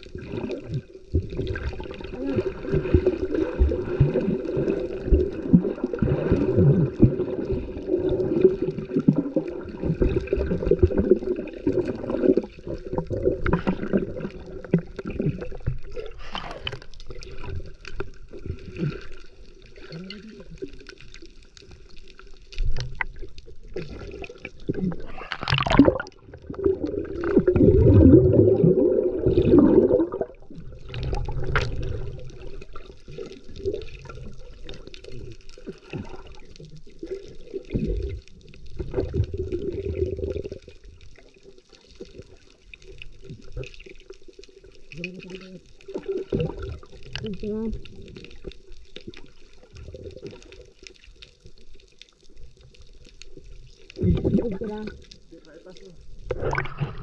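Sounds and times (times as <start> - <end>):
water gurgling and sloshing: 0.0 - 57.0.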